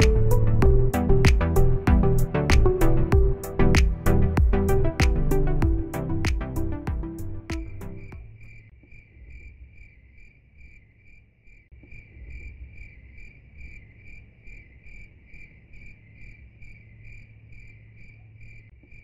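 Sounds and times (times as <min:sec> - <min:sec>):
cricket chirping: 0:08.1 - 0:19.0.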